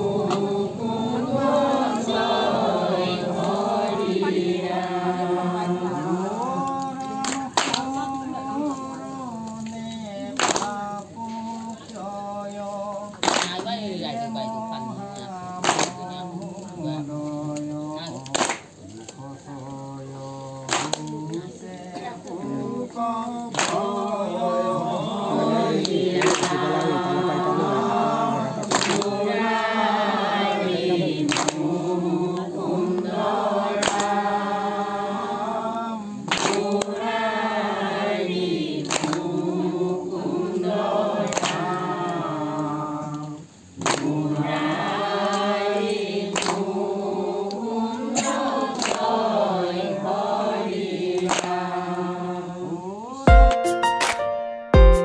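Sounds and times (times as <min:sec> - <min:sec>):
men singing together: 0:00.0 - 0:53.4
sharp hand clap: 0:06.7 - 0:08.9, 0:09.6 - 0:11.7, 0:13.1 - 0:13.8, 0:15.5 - 0:16.2, 0:17.5 - 0:19.3, 0:20.6 - 0:21.4, 0:23.3 - 0:24.2, 0:25.8 - 0:27.0, 0:28.5 - 0:29.2, 0:31.2 - 0:31.7, 0:33.8 - 0:34.2, 0:36.2 - 0:37.0, 0:38.8 - 0:39.4, 0:41.3 - 0:41.9, 0:42.6 - 0:44.2, 0:45.2 - 0:46.7, 0:48.1 - 0:49.2, 0:51.1 - 0:51.7, 0:53.3 - 0:54.4.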